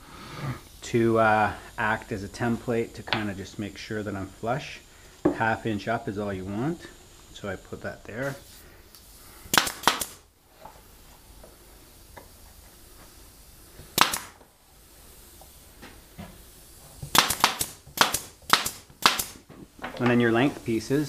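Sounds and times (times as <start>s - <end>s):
nail gun firing: 9.5s - 10.2s, 13.9s - 14.4s, 17.0s - 19.4s.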